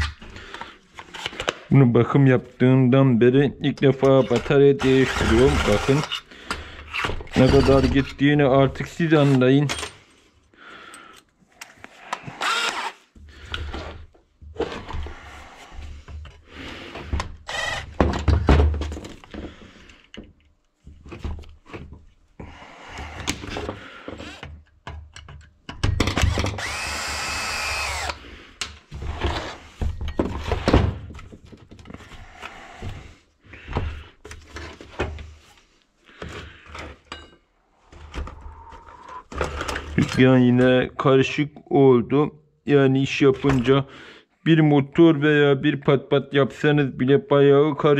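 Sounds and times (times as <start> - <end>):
cordless drill whining: 4.8 - 6.2, 6.9 - 8.0, 12.1 - 13.0, 17.5 - 18.0, 26.2 - 28.2
metal tools clattering on bench: 37.0 - 37.4.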